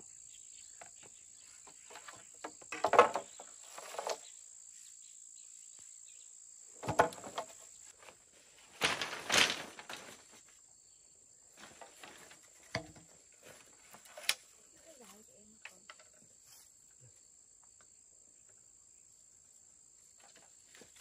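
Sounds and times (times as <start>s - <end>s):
insects chirring: 0.0s - 21.0s
scraping or rustling noises: 1.6s - 4.3s, 6.9s - 10.6s, 11.6s - 15.3s.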